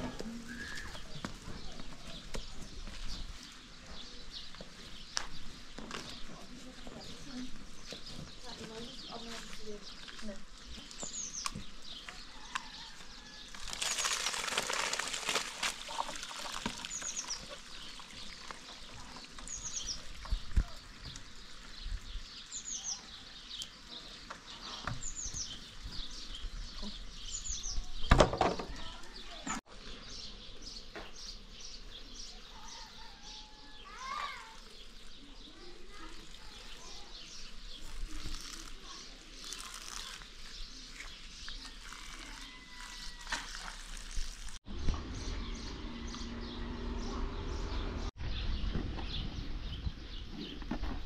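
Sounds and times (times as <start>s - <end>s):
dry food being poured: 13.4s - 22.5s, 35.8s - 44.6s
small bird chirping: 28.8s - 50.6s.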